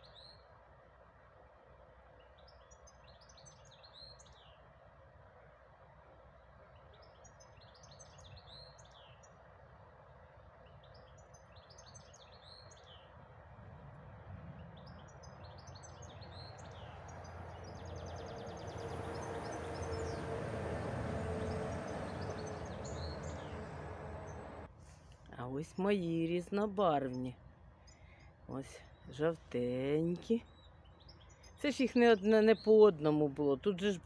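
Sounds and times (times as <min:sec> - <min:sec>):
songbird singing: 0:00.0 - 0:00.5, 0:02.2 - 0:04.7, 0:06.4 - 0:09.5, 0:10.4 - 0:13.2, 0:14.5 - 0:24.7, 0:25.6 - 0:34.0
low rumble: 0:17.4 - 0:24.7.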